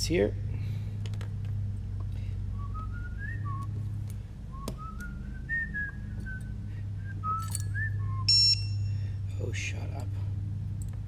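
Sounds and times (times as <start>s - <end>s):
steady low hum: 0.0s - 11.0s
person whistling a tune: 4.6s - 8.8s.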